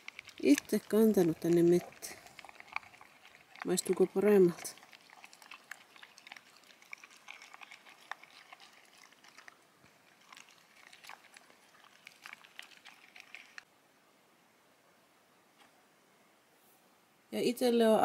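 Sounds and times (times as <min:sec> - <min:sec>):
dog chewing food: 0:00.0 - 0:13.7.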